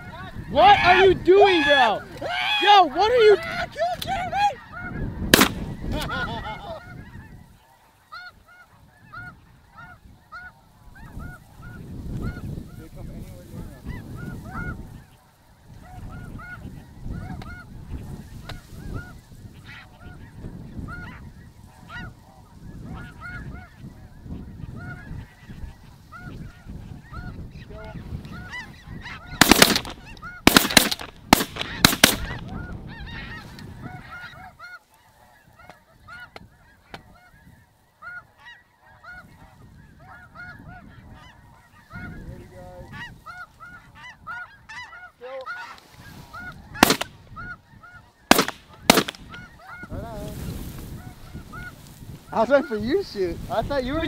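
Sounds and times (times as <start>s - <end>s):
geese honking: 0.0s - 54.0s
wind on microphone: 3.0s - 7.6s, 8.3s - 34.6s, 39.0s - 44.8s, 45.8s - 54.0s
shotgun shots: 5.4s - 5.8s, 29.4s - 32.4s, 46.8s - 47.2s, 48.3s - 49.4s.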